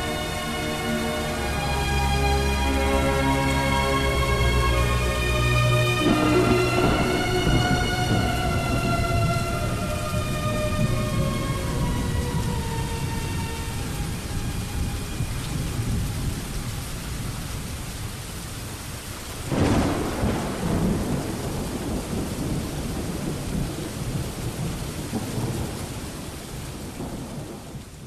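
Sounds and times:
heavy rain: 0.0s - 28.0s
thunderclap rumbling: 2.5s - 17.8s, 19.4s - 28.0s.

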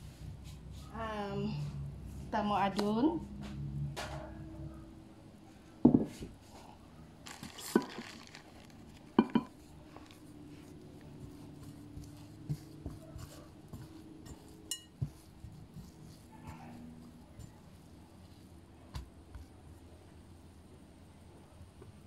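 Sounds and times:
glass bowl knocking and clinking: 5.9s - 6.1s, 9.1s - 9.6s
hands kneading dough: 6.0s - 22.0s.

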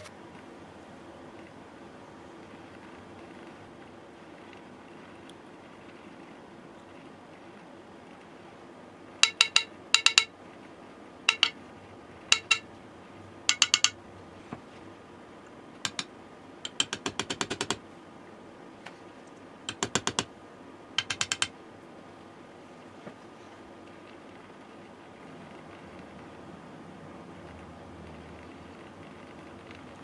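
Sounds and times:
hammer tapping metal plane: 9.2s - 10.3s, 11.3s - 11.6s, 12.3s - 12.7s, 13.5s - 14.0s, 15.8s - 17.8s, 19.7s - 20.3s, 21.0s - 21.5s.

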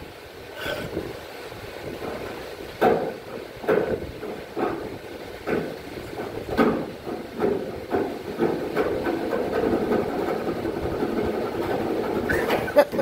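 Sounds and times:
sharp knocks on truck bodywork: 2.8s - 12.7s.

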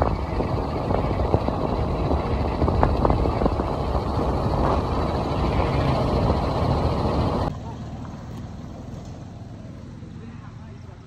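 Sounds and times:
wind rumble on microphone: 0.0s - 7.5s
motorcycle engine running: 0.0s - 11.0s.

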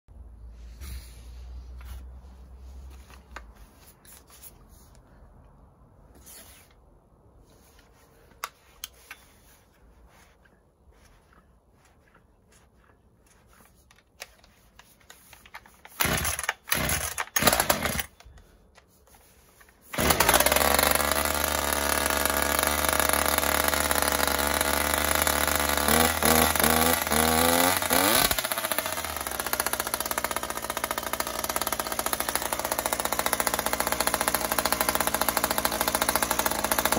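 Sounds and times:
starter cord pulls: 13.4s - 18.8s, 19.9s - 36.9s
chainsaw engine running: 15.9s - 18.2s, 19.9s - 36.9s.

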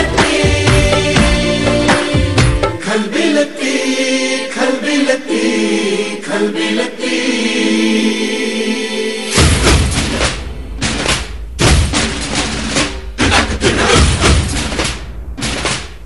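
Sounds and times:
dance music: 0.0s - 3.5s
choir-like chanted vocals: 0.0s - 10.6s.

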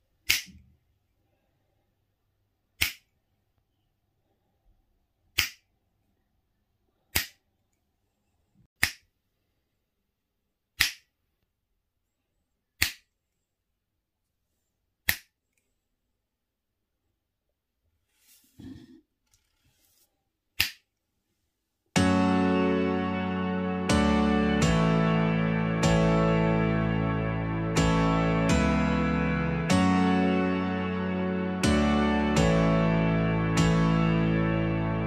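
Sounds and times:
finger snaps: 2.8s - 3.1s.

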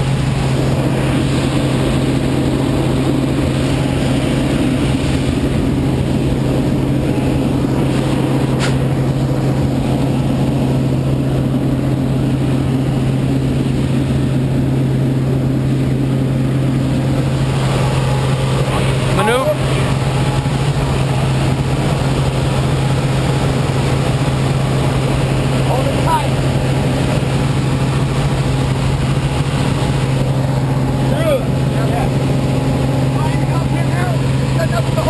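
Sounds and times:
air noise: 0.0s - 35.0s
propeller plane engine drone: 0.0s - 35.0s.

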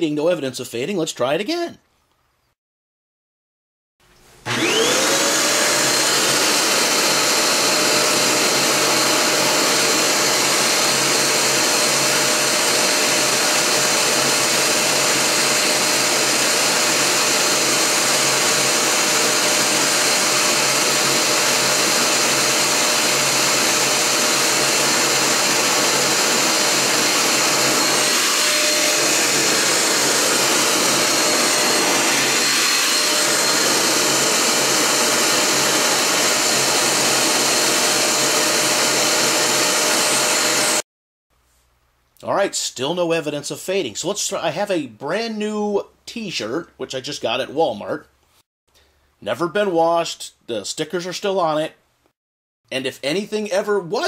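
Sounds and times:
vacuum cleaner motor whine: 4.4s - 40.8s.

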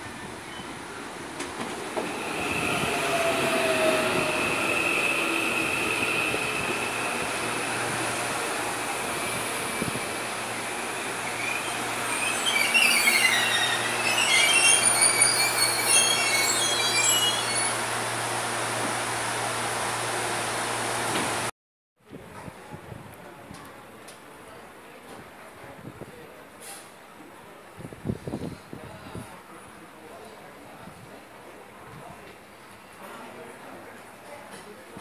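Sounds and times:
electric train braking: 2.0s - 17.9s
wheel and brake squeals: 11.3s - 17.8s.

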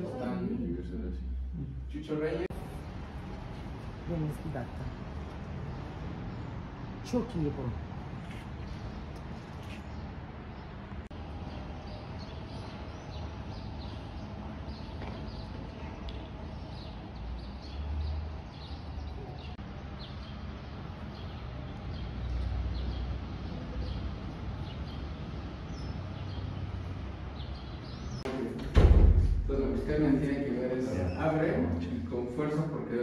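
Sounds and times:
small birds chirping: 2.7s - 28.3s
low rumble: 28.9s - 30.1s.

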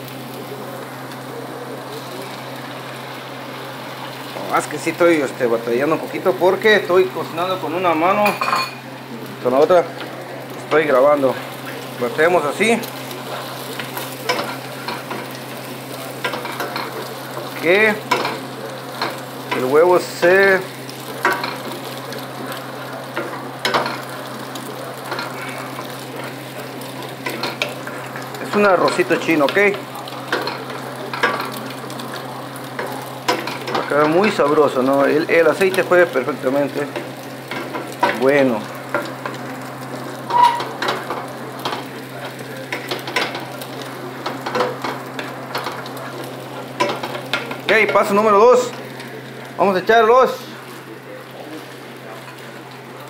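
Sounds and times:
egg sizzling in a frying pan: 0.0s - 53.0s
wooden spatula scraping a pan: 40.2s - 41.1s
wooden spoon scraping a pan: 40.2s - 43.5s
short high squeak: 40.3s - 40.7s.

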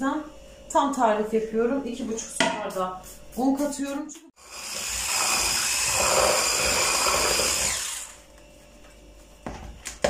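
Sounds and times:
electric hand mixer whining: 4.4s - 8.3s.

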